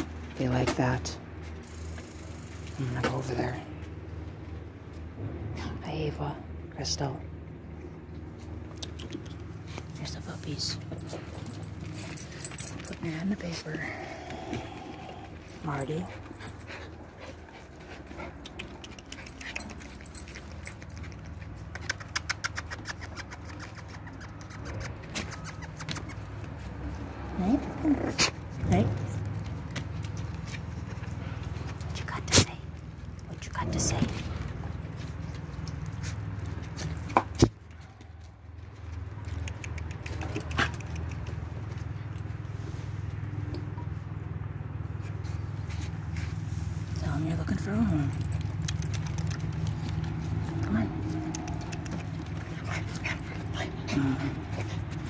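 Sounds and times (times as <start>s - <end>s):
low steady rumble: 0.0s - 22.2s, 23.4s - 55.0s
puppies pattering on wooden deck: 28.5s - 42.5s, 48.1s - 55.0s.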